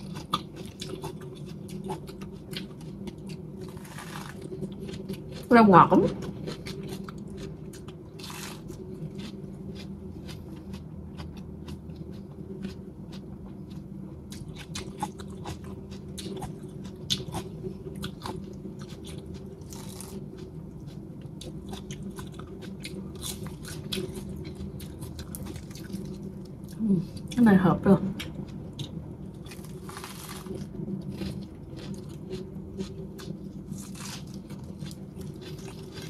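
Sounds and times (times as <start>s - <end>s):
lettuce crunching while chewed: 0.0s - 27.4s, 28.2s - 36.0s
steady low hum: 0.0s - 36.0s.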